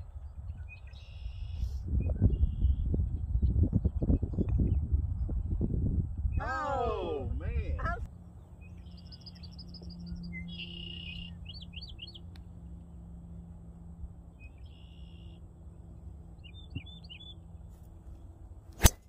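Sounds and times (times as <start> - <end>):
small birds chirping: 0.0 - 4.8, 8.3 - 13.0, 14.3 - 17.8
golf club striking ball: 18.8 - 19.0.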